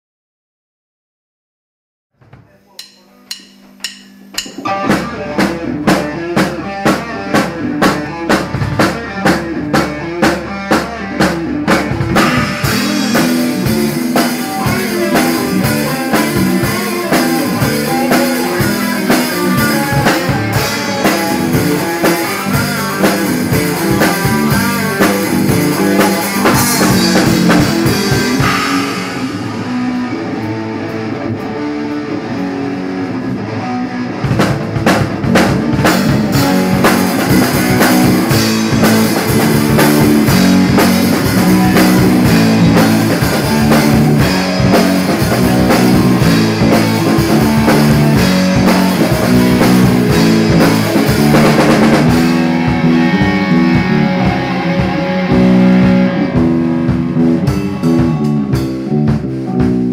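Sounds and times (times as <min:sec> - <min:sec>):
drum strokes: 0:02.5 - 0:07.0, 0:11.7 - 0:30.5, 0:34.4 - 0:58.8
cymbals crashing: 0:02.6 - 0:05.8, 0:12.2 - 0:14.1, 0:26.6 - 0:30.2
rock band playing: 0:02.6 - 0:59.9.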